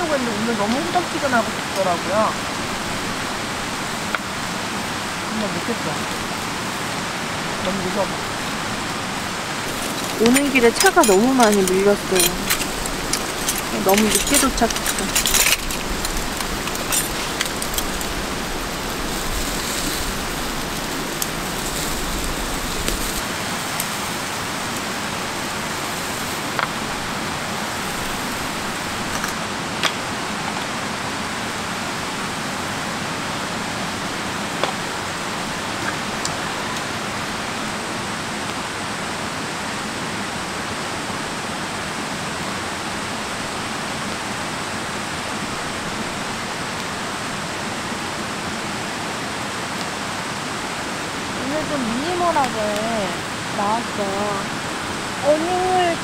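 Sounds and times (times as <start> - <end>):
stream water rushing: 0.0 - 56.0
camp utensils clinking: 9.6 - 18.4.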